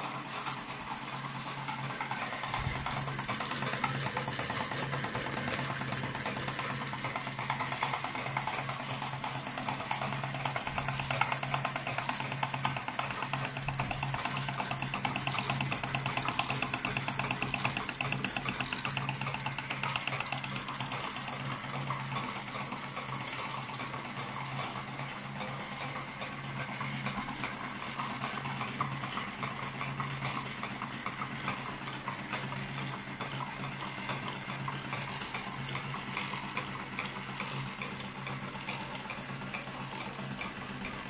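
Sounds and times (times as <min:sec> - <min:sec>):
thin high whine: 0:00.0 - 0:28.5
low mechanical hum: 0:00.0 - 0:41.0
toy steam engine clatter: 0:00.0 - 0:41.0.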